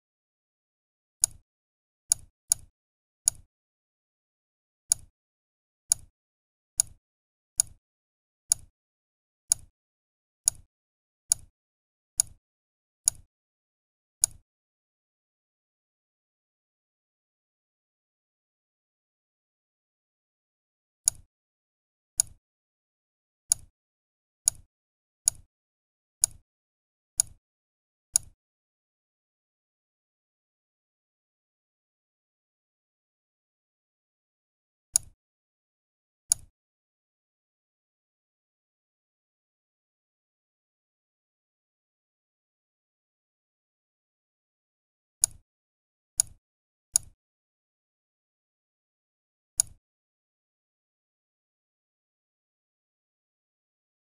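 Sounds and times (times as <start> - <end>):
computer mouse clicks: 49.6 - 49.8.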